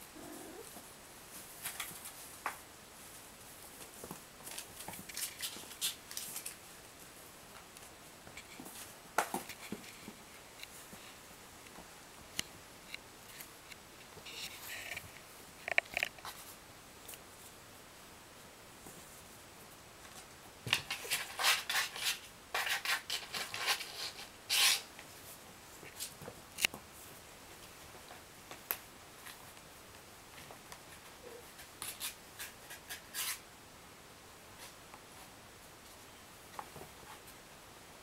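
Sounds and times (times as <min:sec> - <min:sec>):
kittens scratching cardboard box: 0:20.7 - 0:24.9, 0:31.5 - 0:33.4.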